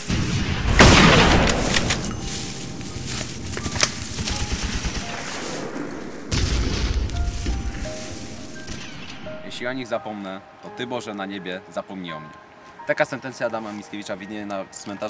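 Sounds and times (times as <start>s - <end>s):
gunfire burst: 0.0s - 7.2s
single gunshots: 0.0s - 7.2s.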